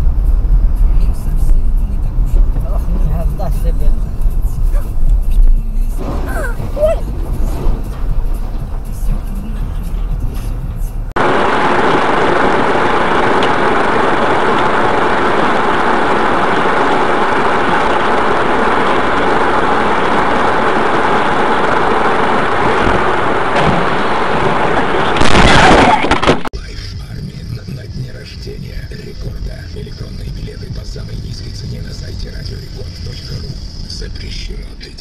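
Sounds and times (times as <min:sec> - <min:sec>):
vehicle road and engine noise: 0:00.0 - 0:25.3, 0:26.0 - 0:35.0
collision crash: 0:05.9 - 0:14.8, 0:22.6 - 0:26.5.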